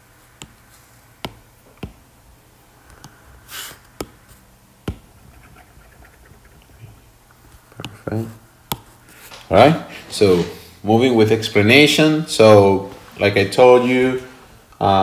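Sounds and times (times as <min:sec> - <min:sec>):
short hiss: 0:03.5 - 0:03.8.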